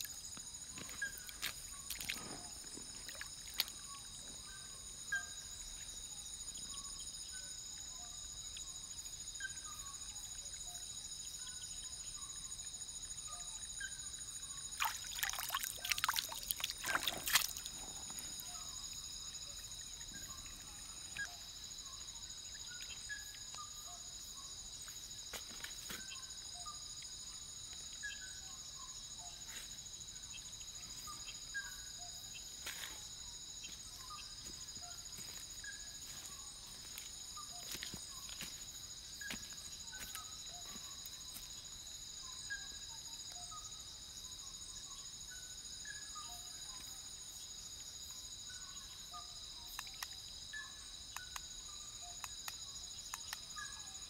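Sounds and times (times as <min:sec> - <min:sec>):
insect trilling drone: 0:00.0 - 0:25.3.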